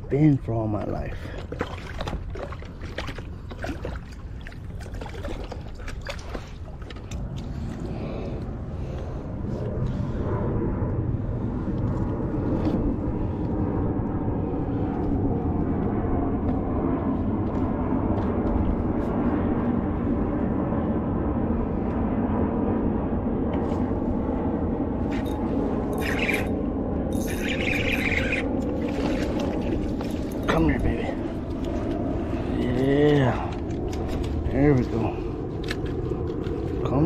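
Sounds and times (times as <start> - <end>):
water splashing and dripping: 1.1 - 7.8, 27.3 - 30.5.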